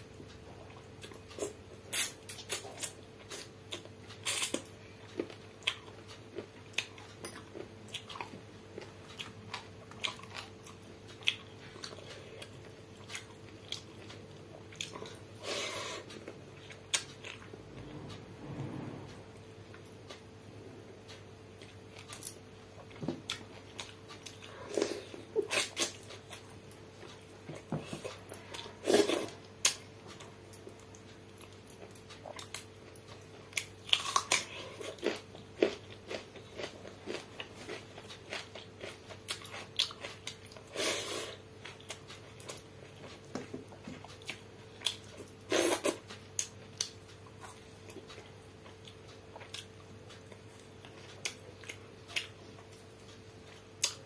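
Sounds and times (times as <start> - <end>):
faint steady hum: 0.0 - 54.0
chewing and wet mouth clicks: 46.1 - 54.0.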